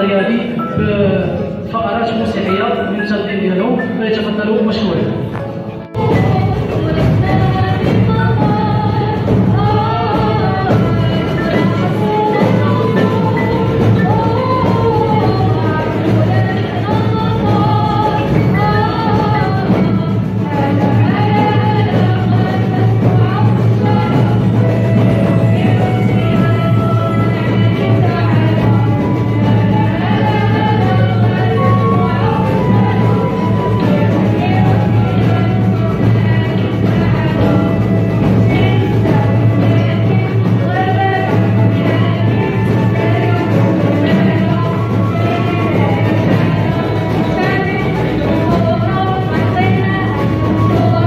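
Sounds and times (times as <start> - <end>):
violin: 0.0 - 51.0
hand drum: 4.7 - 51.0
group of people singing: 4.8 - 51.0.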